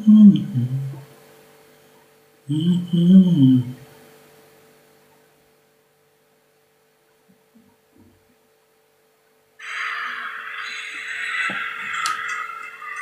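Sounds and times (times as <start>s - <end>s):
crowd applause: 9.6s - 13.0s.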